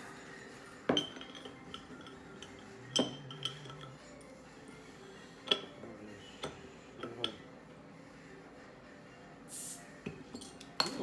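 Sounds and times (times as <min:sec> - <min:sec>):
bottle opener clinking on bottle cap: 0:00.9 - 0:04.0.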